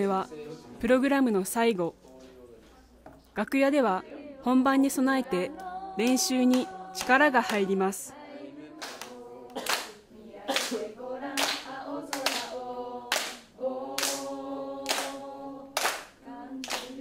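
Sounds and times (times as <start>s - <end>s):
young voices singing together: 3.7s - 17.0s
hand claps: 5.6s - 7.7s, 8.8s - 10.8s, 11.4s - 12.5s, 13.1s - 15.2s, 15.8s - 17.0s.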